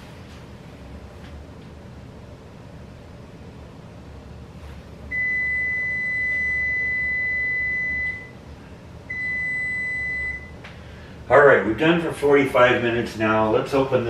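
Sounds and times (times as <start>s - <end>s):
control panel beep: 5.1s - 8.3s, 9.1s - 10.6s
oven timer beeping: 5.1s - 8.4s, 9.1s - 10.6s.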